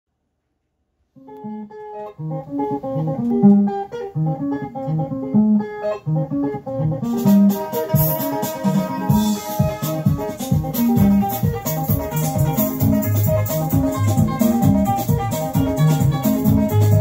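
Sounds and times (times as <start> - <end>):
electric guitar lines: 1.2 - 17.0
bass: 1.4 - 17.0
cymbals: 7.2 - 17.0.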